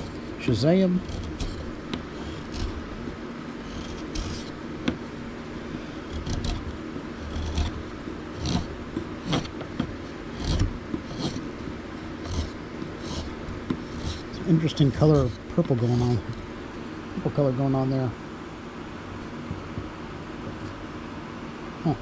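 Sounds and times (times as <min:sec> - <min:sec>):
chisel paring wood: 0:00.0 - 0:03.0, 0:03.6 - 0:05.1, 0:05.8 - 0:16.4.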